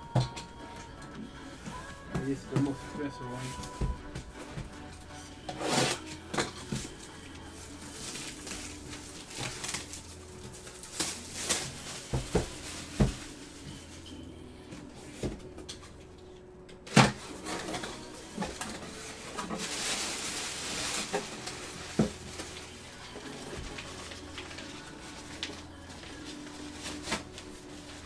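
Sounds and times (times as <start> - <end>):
paper rustling: 5.6 - 14.1, 17.0 - 28.0.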